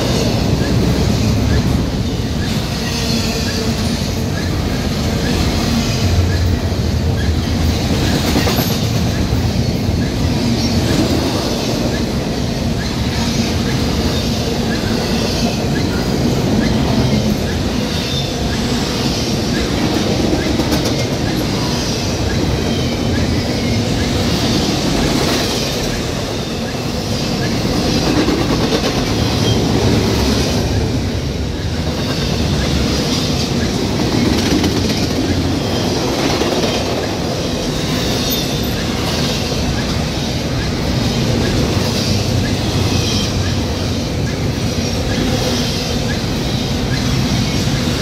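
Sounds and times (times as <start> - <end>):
freight train rolling past: 0.0 - 48.0
steel wheels rumbling on rails: 0.0 - 48.0.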